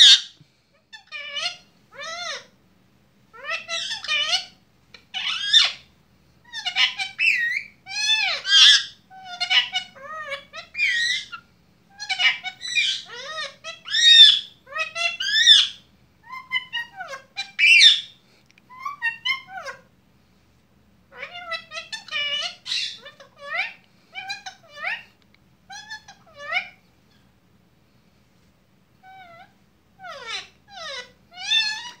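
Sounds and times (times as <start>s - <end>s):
parakeet chattering: 0.0s - 0.3s, 3.4s - 5.9s, 6.5s - 18.1s, 18.7s - 19.8s, 21.1s - 25.1s, 25.7s - 26.8s, 29.0s - 32.0s.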